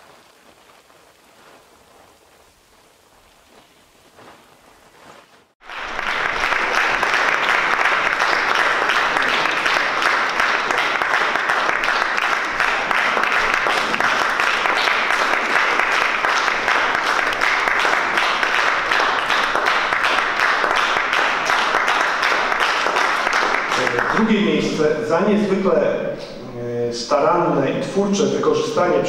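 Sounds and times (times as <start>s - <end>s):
faint patter: 0.0s - 5.5s
audience applause: 5.6s - 24.7s.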